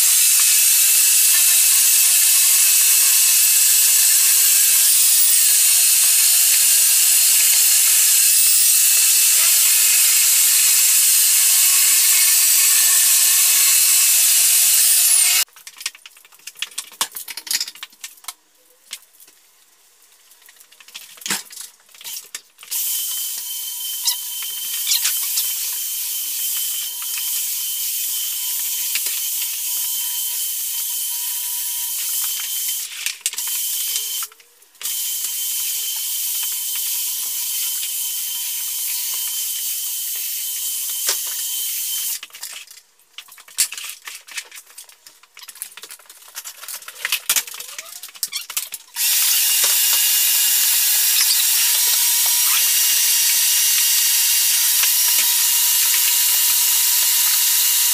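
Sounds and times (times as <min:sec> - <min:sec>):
floor sander whining: 0:00.0 - 0:15.4, 0:49.1 - 0:57.9.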